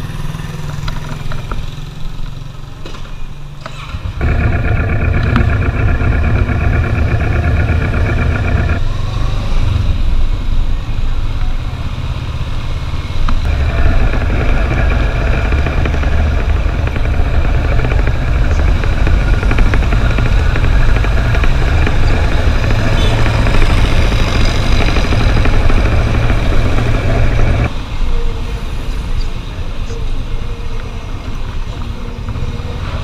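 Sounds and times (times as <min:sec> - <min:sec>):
road noise: 0:00.0 - 0:33.0
motorcycle engine running: 0:04.1 - 0:08.9, 0:13.3 - 0:27.7.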